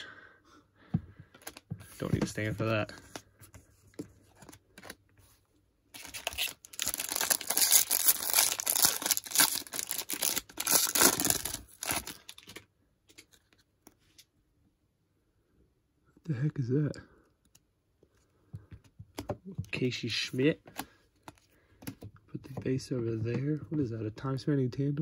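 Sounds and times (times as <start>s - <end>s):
plastic wrapper ripping and crinkling: 5.9s - 12.6s.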